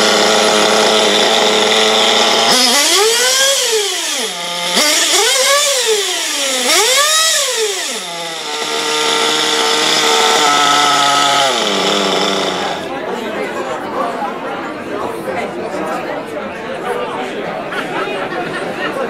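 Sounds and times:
nitro engine revving: 0.0 - 12.9.

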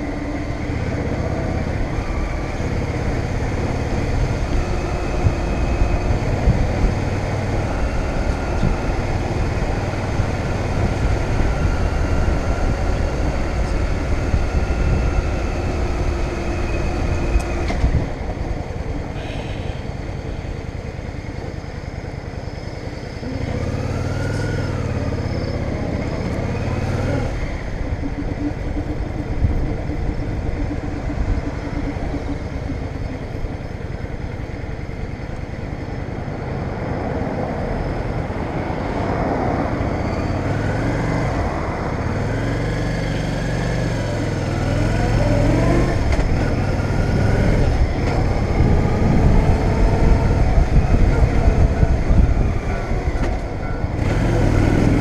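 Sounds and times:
motorcycle engine accelerating: 0.0 - 19.0, 23.0 - 36.3, 39.7 - 55.0
wind noise: 0.0 - 22.3, 26.0 - 43.0, 44.4 - 55.0.

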